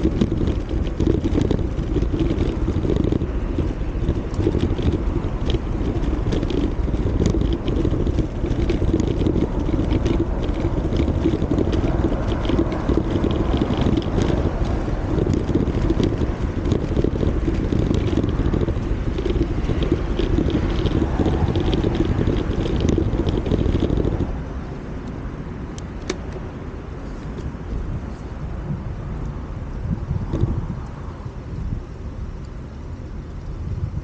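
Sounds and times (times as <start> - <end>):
small clicks and rattles: 0.0 - 24.4, 29.9 - 31.0
bicycle tyres rolling on pavement: 0.0 - 34.0
wind noise on microphone: 0.0 - 34.0.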